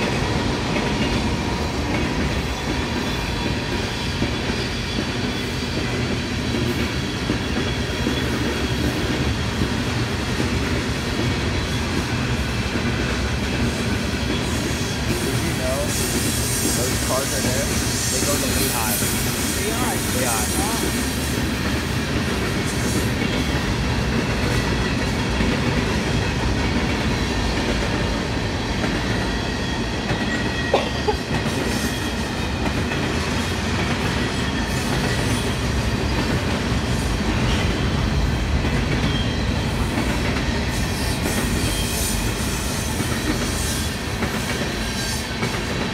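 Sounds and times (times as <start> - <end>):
freight train rolling past: 0.0 - 45.9.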